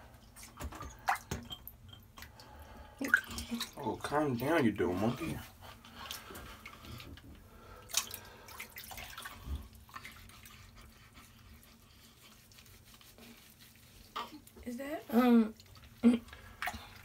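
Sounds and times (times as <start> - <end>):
water splashing in sink: 0.3 - 10.7.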